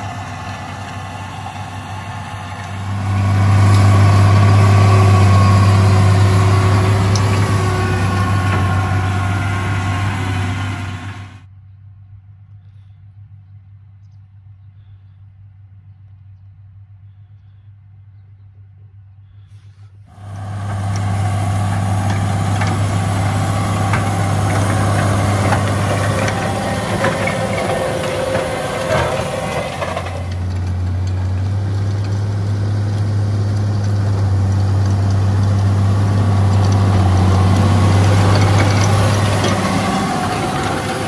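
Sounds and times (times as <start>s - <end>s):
tractor diesel engine running: 0.0s - 11.5s, 20.1s - 41.0s
seed drill rattling: 20.2s - 41.0s.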